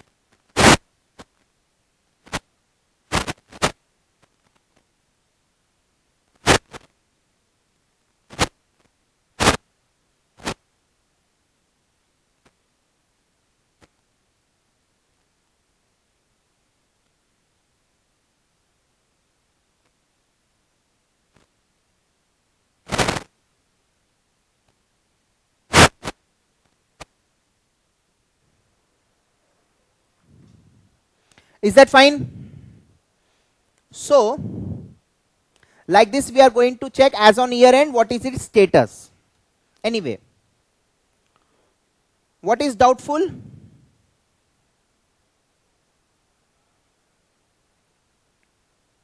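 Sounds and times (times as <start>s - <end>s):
short noisy bursts: 0.6s - 0.8s, 3.1s - 3.8s, 6.4s - 6.8s, 22.9s - 23.3s, 25.7s - 26.2s
faint click: 31.3s - 31.5s, 41.2s - 41.5s, 48.4s - 48.6s.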